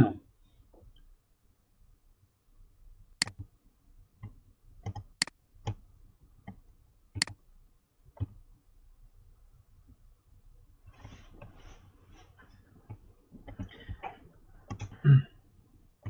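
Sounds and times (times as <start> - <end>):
computer mouse clicking: 3.2 - 3.5, 4.2 - 5.8, 7.2 - 7.4, 14.7 - 15.0.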